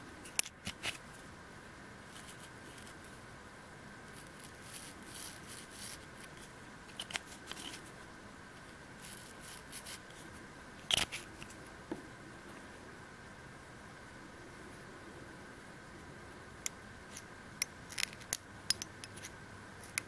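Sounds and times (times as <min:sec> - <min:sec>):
faint hum: 0:00.0 - 0:20.0
soft handling rustles: 0:02.1 - 0:03.2, 0:04.0 - 0:12.7.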